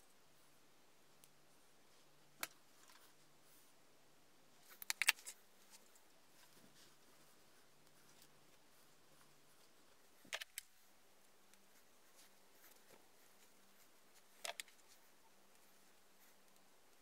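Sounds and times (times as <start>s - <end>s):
faint steady hum: 0.0s - 17.0s
sharp clicks: 4.7s - 5.4s.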